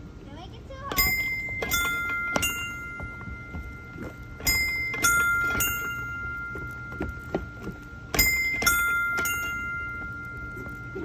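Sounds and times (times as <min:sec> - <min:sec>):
bell-like chime notes: 0:00.9 - 0:11.0.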